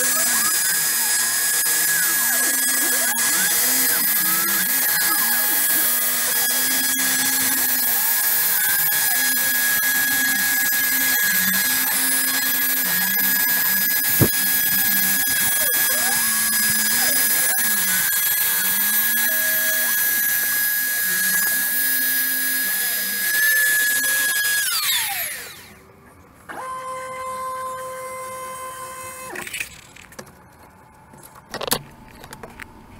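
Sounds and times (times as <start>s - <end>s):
spindle winding down: 0.0s - 25.8s
stepper motors humming: 0.0s - 25.9s
router spindle whine: 0.0s - 29.6s.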